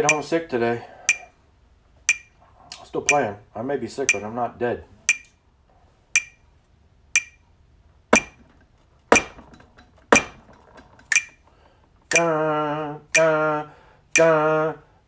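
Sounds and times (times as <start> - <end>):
metronome clicking: 0.0 - 0.3, 1.1 - 1.3, 2.1 - 2.4, 4.1 - 4.3, 5.1 - 5.4, 6.2 - 6.4, 7.2 - 7.5, 8.2 - 8.4, 11.1 - 11.4, 12.1 - 12.4, 13.1 - 13.4, 14.1 - 14.4
man singing long held notes: 12.1 - 14.9.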